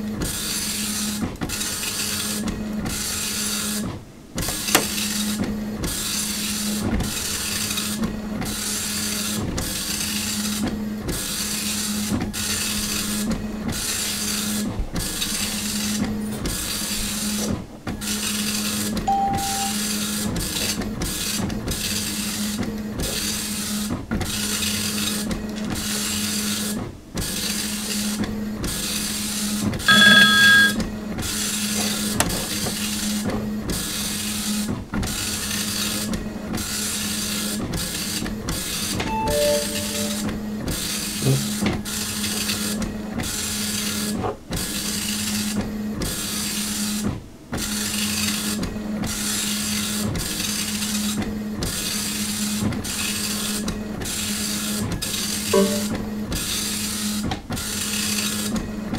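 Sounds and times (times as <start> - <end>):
high electronic beep: 19.1 - 19.8, 29.9 - 30.8, 39.1 - 40.4, 55.6 - 56.0
soft falling tones: 39.1 - 40.4.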